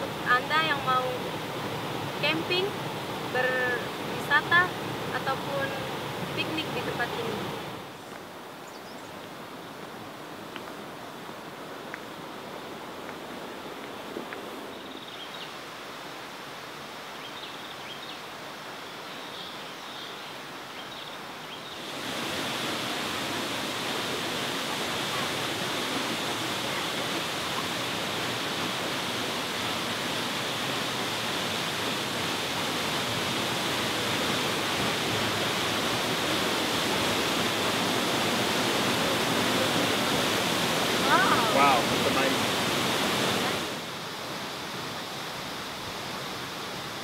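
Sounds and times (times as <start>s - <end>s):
waterfall rushing into pool: 0.0s - 8.6s, 20.3s - 47.0s.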